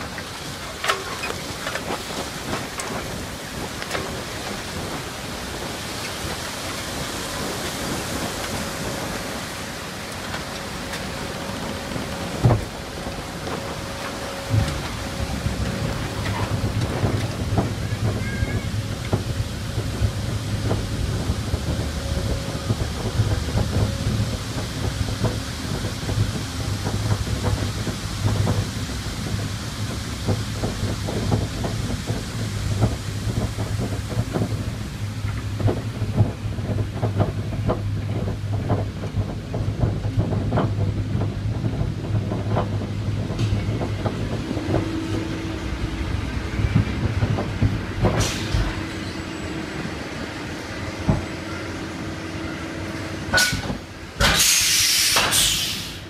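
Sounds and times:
rushing water hissing: 0:00.0 - 0:40.0, 0:40.7 - 0:56.0.

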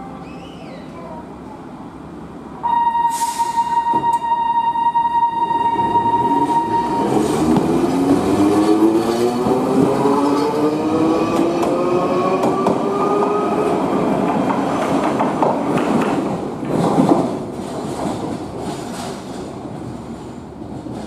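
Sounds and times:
tram motor whine: 0:02.6 - 0:14.0.

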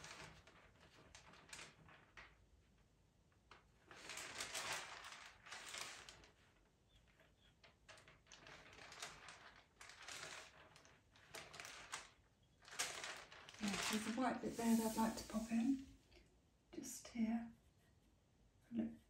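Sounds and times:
paper rustling: 0:08.2 - 0:15.8.

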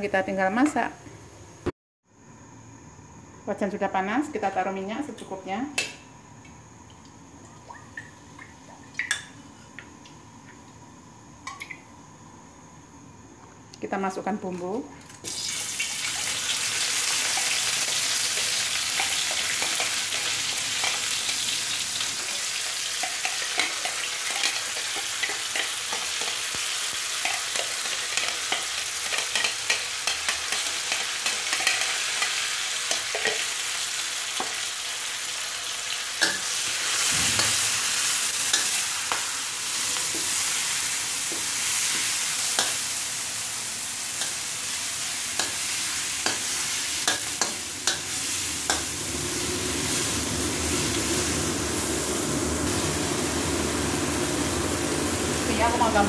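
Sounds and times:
spice paste sizzling in oil: 0:15.2 - 0:56.0.

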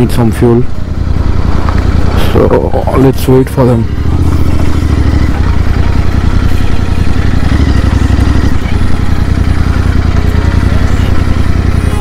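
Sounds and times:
motorcycle engine low throb: 0:00.0 - 0:12.0.

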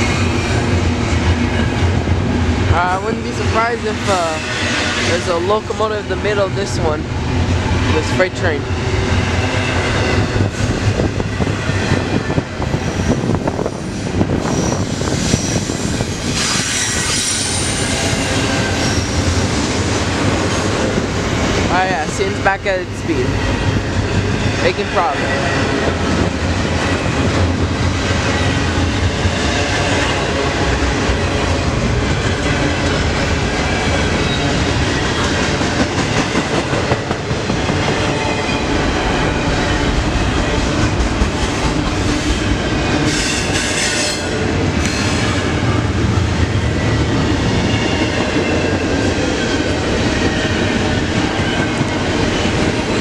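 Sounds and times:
freight train rumbling past: 0:00.0 - 0:53.0
high wheel squeal: 0:14.4 - 0:19.4.

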